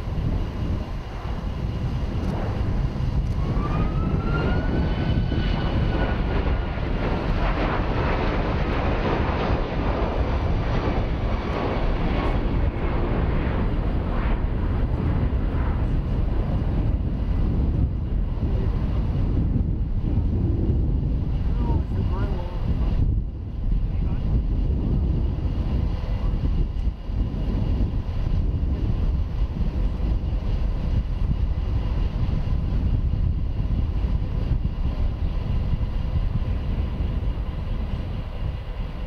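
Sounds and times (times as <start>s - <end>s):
whining engine tone: 0.0s - 7.3s
jet airliner flying overhead: 0.0s - 39.0s.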